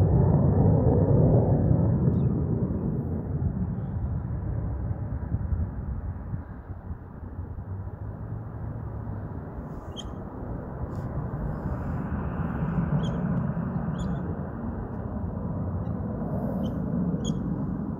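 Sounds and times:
distant aircraft rumble: 0.0s - 17.9s
high bird chirps: 9.8s - 10.2s, 13.0s - 14.3s, 16.6s - 17.5s.

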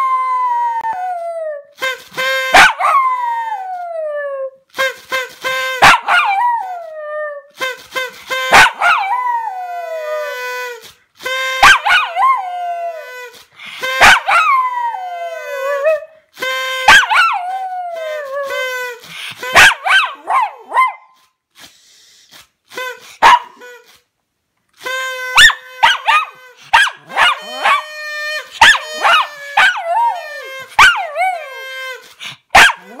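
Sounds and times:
dog yipping and barking: 2.5s - 3.1s, 5.8s - 6.7s, 8.5s - 9.3s, 11.6s - 12.4s, 14.0s - 14.7s, 16.9s - 17.6s, 19.5s - 21.2s, 23.2s - 23.6s, 25.4s - 27.9s, 28.6s - 31.5s, 32.5s - 33.0s.

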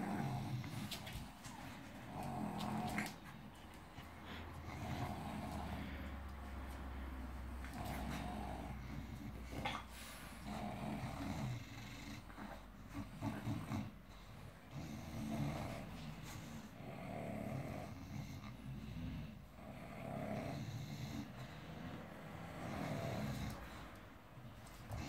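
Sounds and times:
dog snoring: 0.0s - 1.1s, 2.0s - 3.2s, 4.5s - 6.3s, 7.4s - 24.0s.

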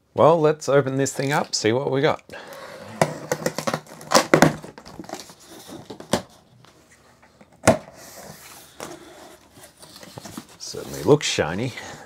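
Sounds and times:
cardboard rustling: 2.8s - 11.2s.

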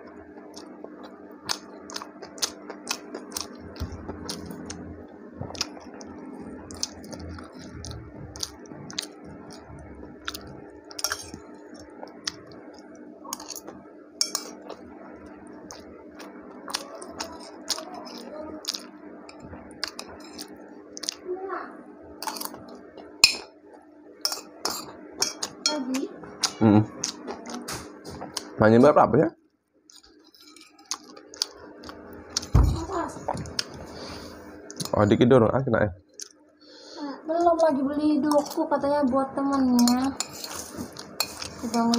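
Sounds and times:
faint steady hum: 0.0s - 41.9s
person chewing: 0.4s - 21.2s, 22.2s - 25.7s, 26.3s - 28.6s, 29.9s - 32.5s, 33.2s - 34.9s, 39.8s - 41.9s.

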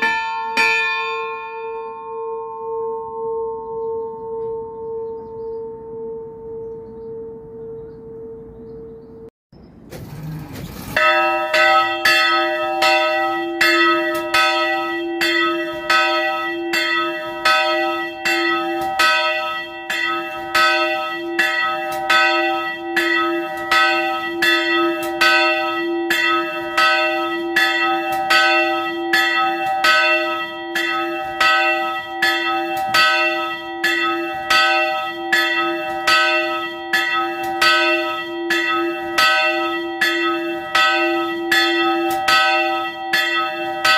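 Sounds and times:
church bell ringing: 0.0s - 9.3s, 10.9s - 43.9s.

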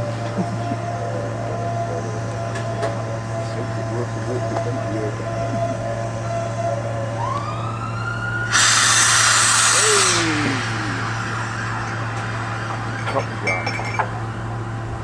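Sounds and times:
steam locomotive whistle: 8.4s - 12.0s
rush of steam: 8.5s - 11.6s.

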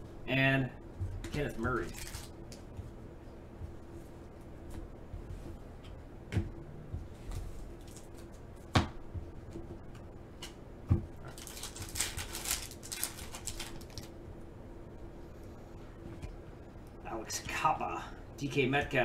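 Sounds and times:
foil wrapper crinkling: 1.6s - 2.4s, 11.2s - 14.1s.

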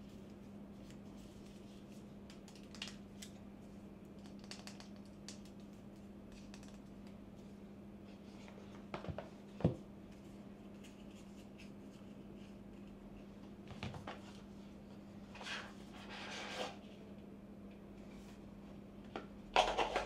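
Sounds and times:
steady low hum: 0.0s - 20.0s
plastic and cardboard scratches: 15.4s - 16.8s.

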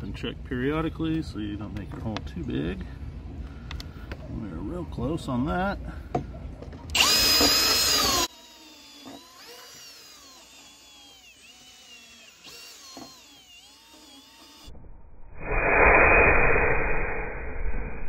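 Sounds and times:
cordless drill whining: 6.9s - 14.7s.

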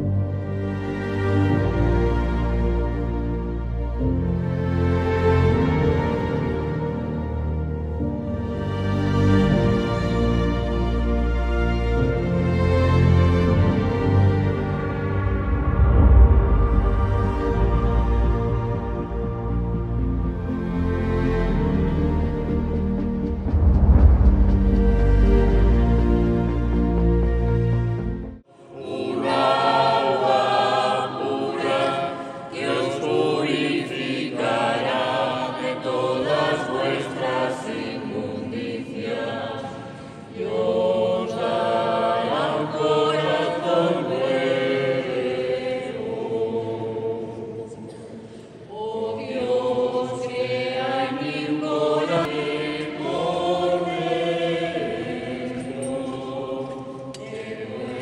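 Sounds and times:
congregation singing a hymn: 28.4s - 58.0s.

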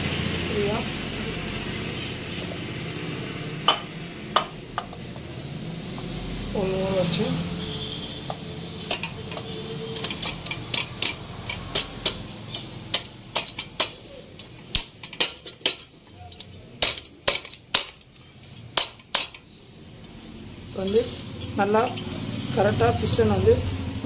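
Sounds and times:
metallic clinks and taps: 8.2s - 22.5s.

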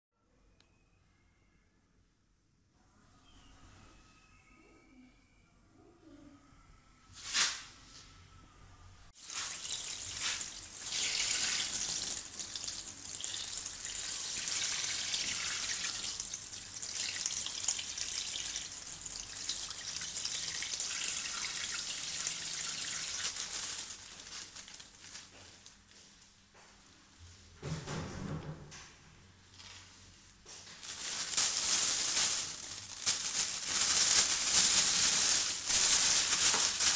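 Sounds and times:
tap water running into sink: 9.2s - 23.3s.

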